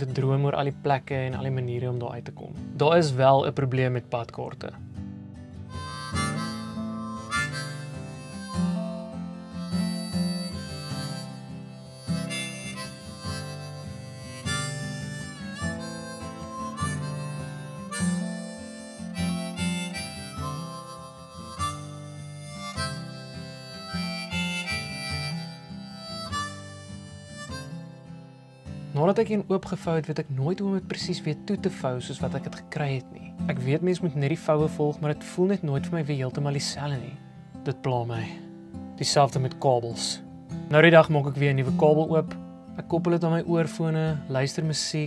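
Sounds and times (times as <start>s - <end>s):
harmonica melody: 5.5s - 37.2s.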